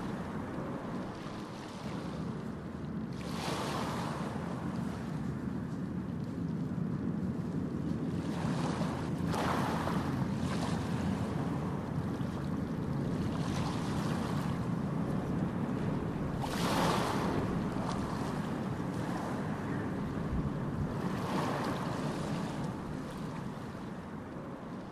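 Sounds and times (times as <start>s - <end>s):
wind gusting on microphone: 6.6s - 24.9s
ship engines rumbling: 10.0s - 24.9s.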